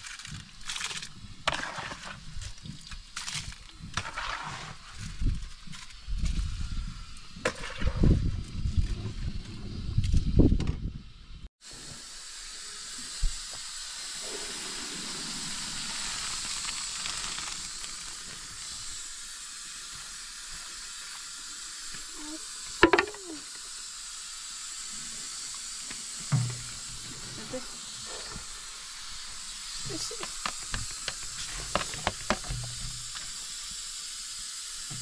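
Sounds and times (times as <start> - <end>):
food hissing on the heat: 11.6 - 35.0.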